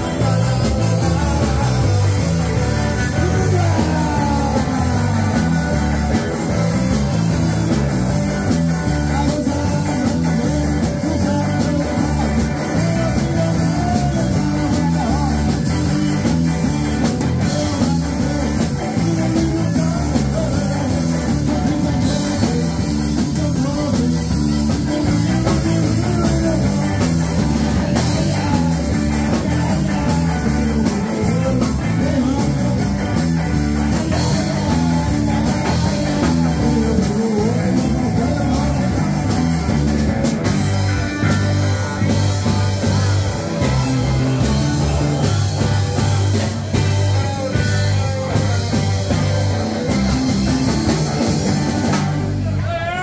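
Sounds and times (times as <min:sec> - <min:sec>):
bass guitar: 0:00.0 - 0:53.0
drum kit: 0:00.0 - 0:53.0
electric guitars: 0:00.0 - 0:53.0
person singing: 0:00.0 - 0:53.0.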